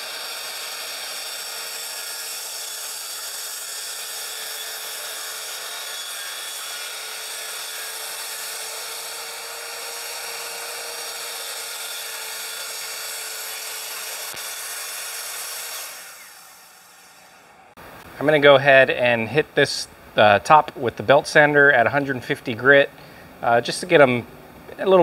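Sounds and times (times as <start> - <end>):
circular saw cutting wood: 0.0 - 17.8.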